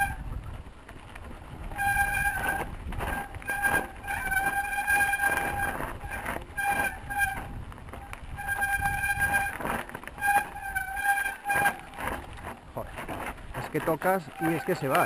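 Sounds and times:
wind on camera: 0.0 - 10.8
bike rattling over rocky ground: 0.0 - 15.0
bike disc brakes squealing: 1.7 - 15.0.

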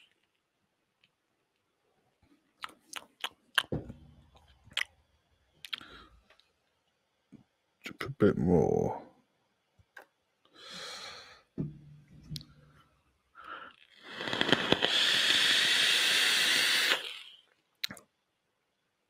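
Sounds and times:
vape airflow hiss with crackling: 13.8 - 17.5.

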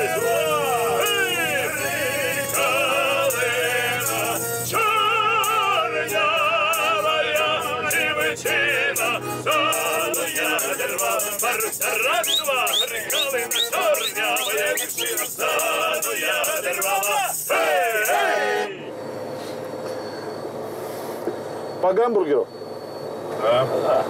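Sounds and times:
button accordion: 0.0 - 18.7
choir singing with vibrato: 0.0 - 19.1.

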